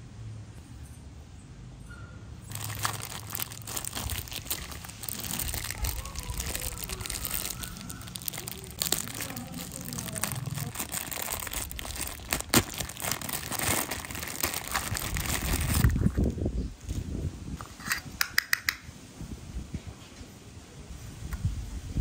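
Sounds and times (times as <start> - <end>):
plastic wrap crinkling: 2.5 - 16.3.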